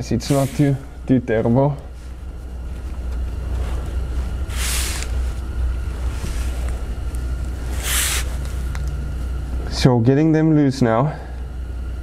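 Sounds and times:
short hisses: 0:00.3 - 0:00.9, 0:04.5 - 0:05.1, 0:07.7 - 0:08.4.

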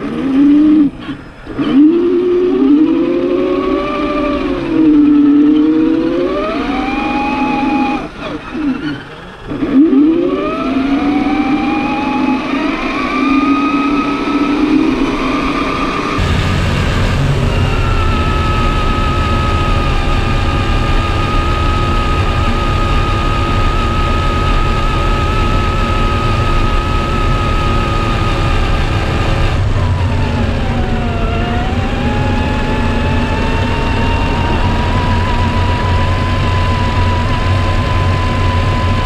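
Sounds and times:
rc truck motor whining: 0:00.0 - 0:39.0
low rumble: 0:15.9 - 0:39.0.

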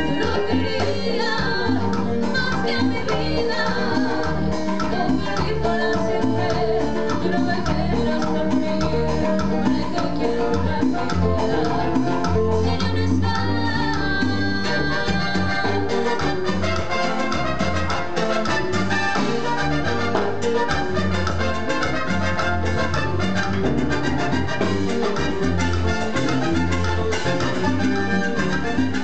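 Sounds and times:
woman singing into microphone: 0:00.0 - 0:16.4
electric guitar: 0:00.0 - 0:29.0
keyboard: 0:00.0 - 0:29.0
drums with steady beat: 0:01.6 - 0:29.0.

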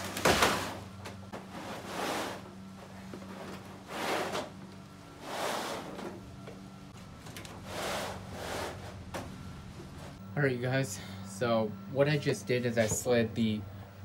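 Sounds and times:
mat scraping along truck bed: 0:01.4 - 0:04.6, 0:05.2 - 0:06.2, 0:07.6 - 0:09.2.

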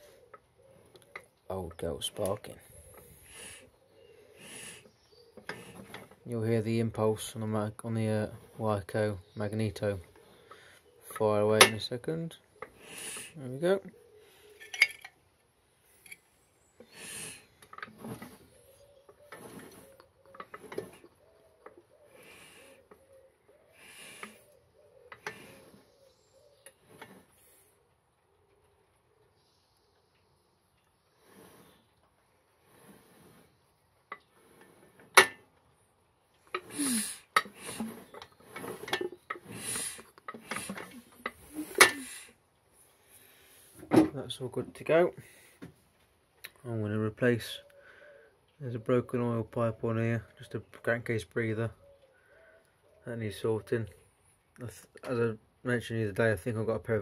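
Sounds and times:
rubbing and handling noise: 0:17.6 - 0:23.0, 0:36.4 - 0:42.1.

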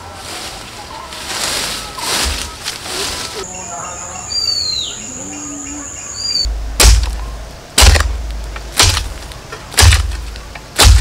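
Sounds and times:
bird chirping: 0:01.8 - 0:07.5
steady high buzz: 0:03.5 - 0:11.0
hoe striking soil: 0:07.8 - 0:11.0.

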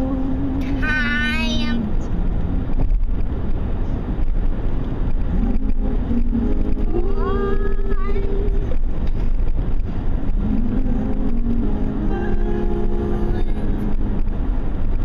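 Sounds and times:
low road rumble in car: 0:00.0 - 0:15.0
faint held tune: 0:05.2 - 0:15.0.

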